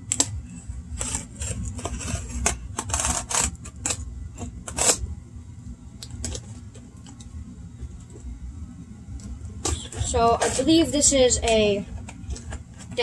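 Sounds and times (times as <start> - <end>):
utility knife slicing packing tape: 2.8 - 4.0, 4.7 - 5.0.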